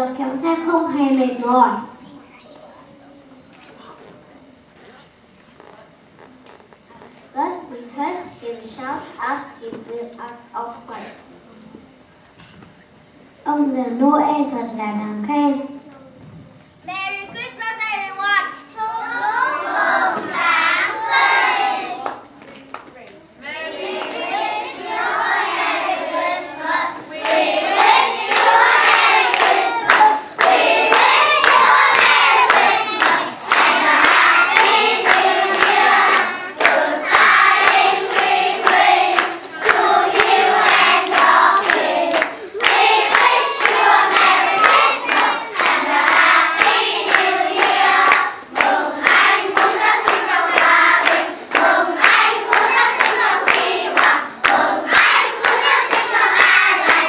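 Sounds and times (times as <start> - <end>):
children's choir singing: 19.0 - 22.2, 23.4 - 57.0.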